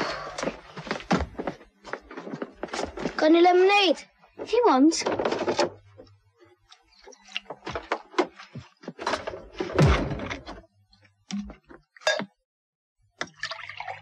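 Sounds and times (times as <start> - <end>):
glass bottles clinking: 12.0 - 12.4.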